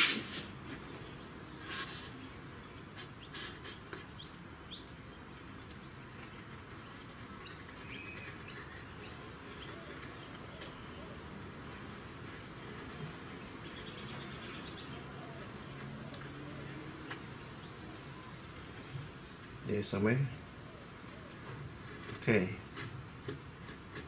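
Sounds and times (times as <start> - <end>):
rustles and taps of handling: 21.4 - 24.0.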